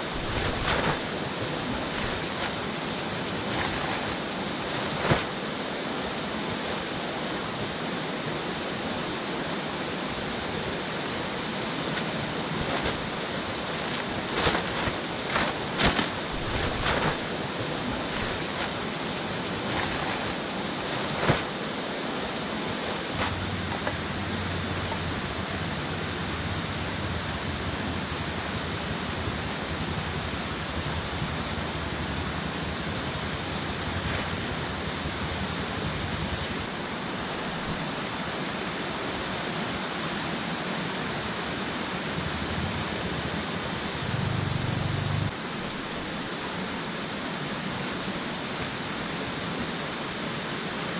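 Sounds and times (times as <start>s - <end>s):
river flowing over rocks: 0.0s - 50.9s
sharp knocks or crinkles: 0.1s - 1.1s, 1.8s - 2.6s, 3.4s - 5.3s, 12.0s - 13.1s, 13.9s - 18.8s, 19.6s - 21.6s, 23.1s - 24.0s.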